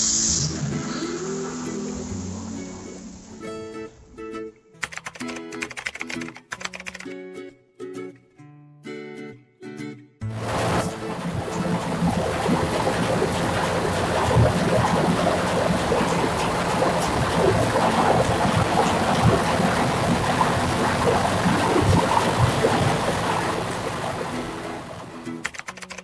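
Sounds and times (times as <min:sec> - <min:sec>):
diesel generator engine running: 0:10.3 - 0:25.4.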